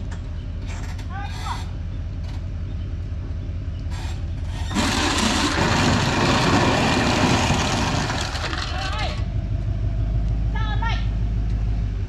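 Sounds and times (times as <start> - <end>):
engine rumbling: 0.0 - 12.0.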